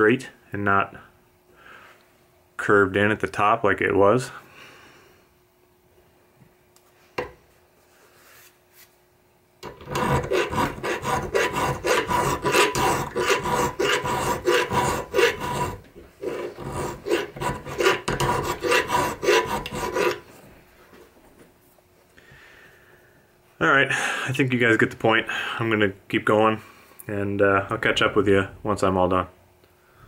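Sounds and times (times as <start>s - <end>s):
hand file rasping on metal: 9.6s - 20.3s.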